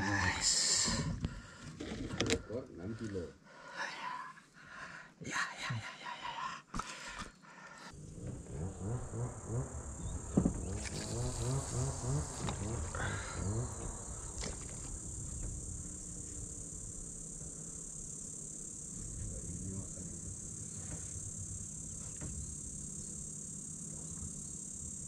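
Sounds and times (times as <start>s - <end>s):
insects droning: 0.0s - 25.0s
low pulsing: 7.9s - 24.3s.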